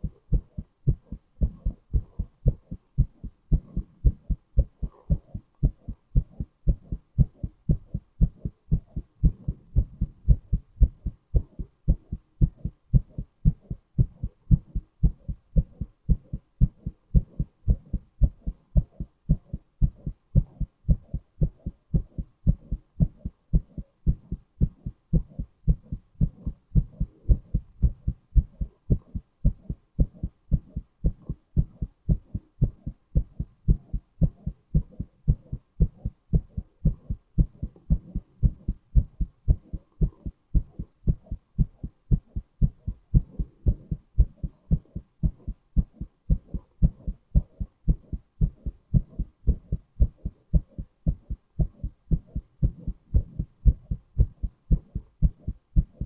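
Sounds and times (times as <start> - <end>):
heartbeat thuds: 0.0 - 56.0.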